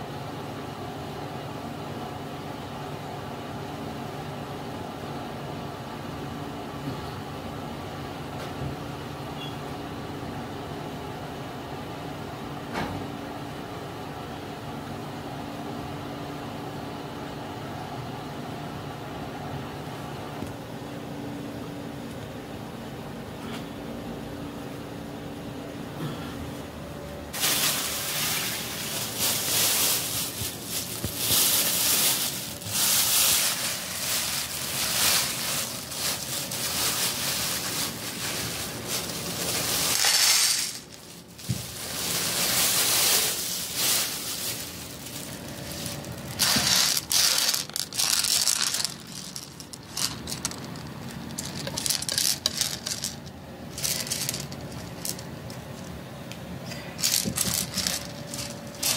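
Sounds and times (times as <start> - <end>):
plastic bag rustling: 27.3 - 56.0, 57.0 - 58.9
beans rattling on plate: 27.4 - 55.9, 57.0 - 58.9
dried beans clattering onto plate: 39.7 - 41.0, 46.3 - 55.6, 57.0 - 58.9.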